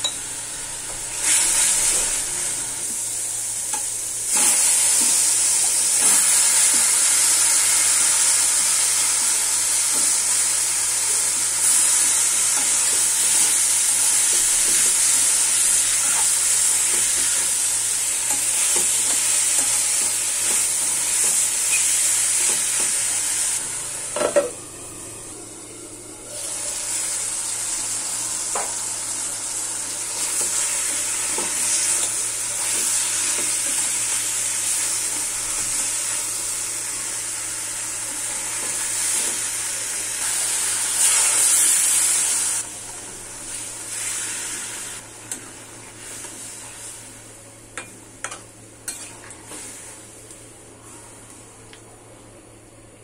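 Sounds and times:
food sizzling in frying pan: 0.0s - 25.2s, 26.2s - 51.3s.

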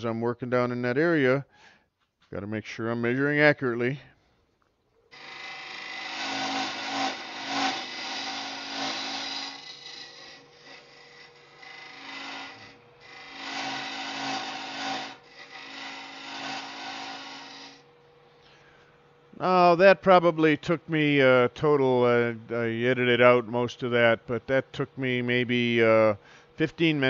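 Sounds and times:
lathe humming: 5.1s - 18.3s.

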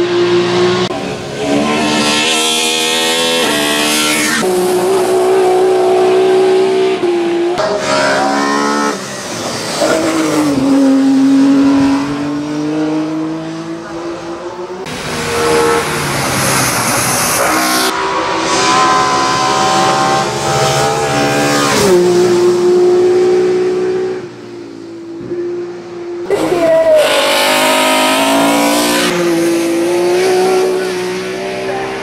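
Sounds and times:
race car engine revving hard: 0.0s - 24.3s, 26.2s - 32.0s.

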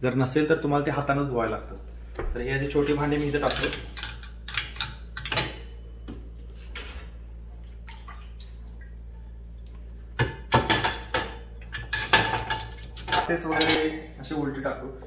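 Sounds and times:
metal pots clinking on wire rack: 10.5s - 14.0s.

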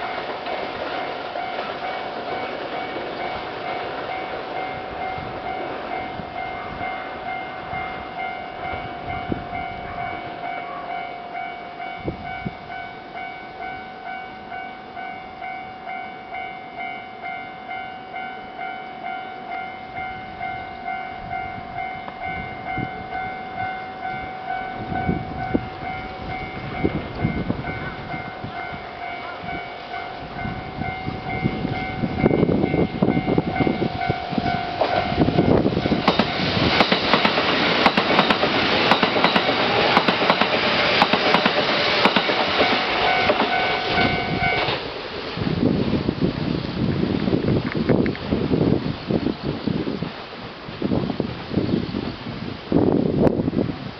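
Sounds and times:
train wheel clatter and rumble: 0.0s - 10.2s, 30.3s - 49.0s
level crossing bell ringing: 1.1s - 36.5s, 42.3s - 44.7s.

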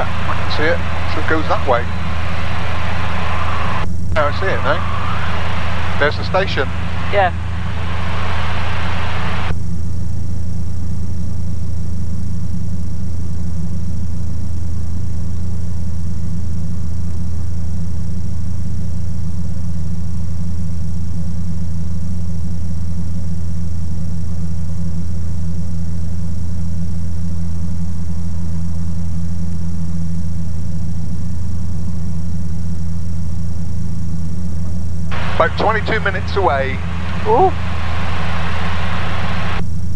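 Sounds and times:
aircraft engine droning: 0.0s - 11.0s, 24.0s - 39.9s.

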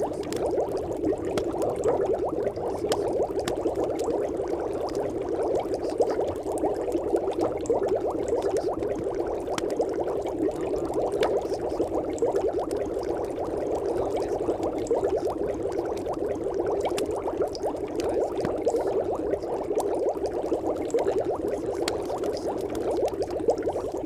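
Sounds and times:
muffled bubbling noise: 0.0s - 24.0s.

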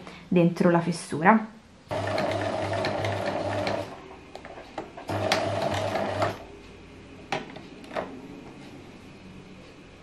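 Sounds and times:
sewing machine stitching: 1.9s - 4.0s, 5.0s - 6.4s.

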